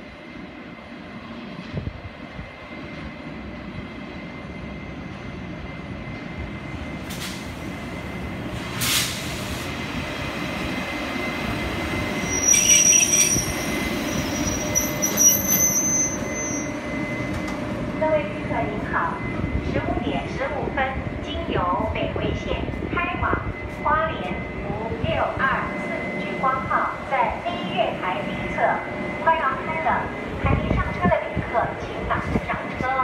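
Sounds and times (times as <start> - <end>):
train rumble: 0.0 - 33.0
wheel and brake squeal: 12.0 - 17.4.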